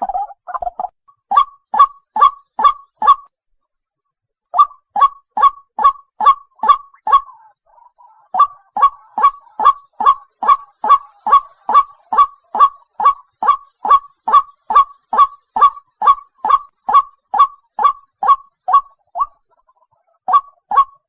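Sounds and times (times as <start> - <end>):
bird calling sharp notes: 4.6 - 19.4.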